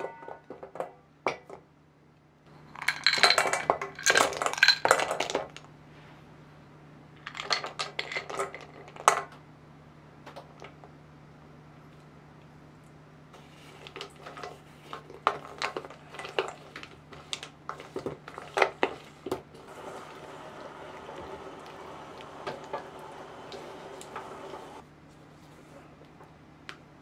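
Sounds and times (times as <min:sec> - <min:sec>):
chocolate pieces clacking in metal bowl: 0:02.8 - 0:05.6.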